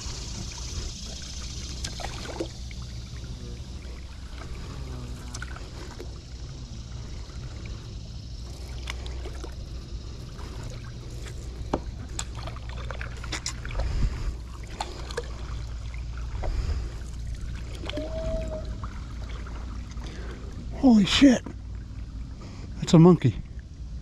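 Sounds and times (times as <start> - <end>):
steady low rumble: 0.0 - 24.0
small clicks and splashes: 1.0 - 3.1, 8.4 - 18.0.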